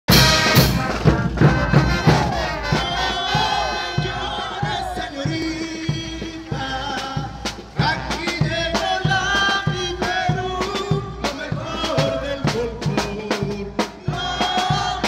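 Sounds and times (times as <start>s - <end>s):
live folk band music: 0.1s - 15.0s
steady drum beat: 0.1s - 15.0s
crowd voices: 0.2s - 6.8s.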